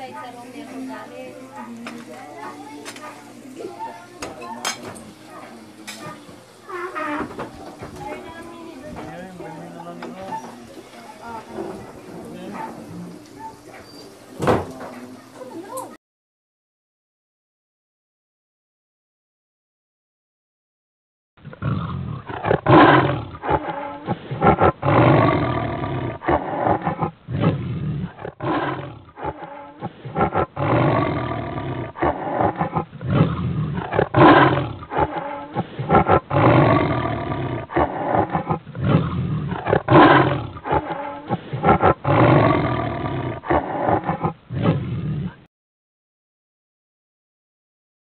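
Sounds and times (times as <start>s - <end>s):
big cat roaring and growling: 21.4s - 45.5s.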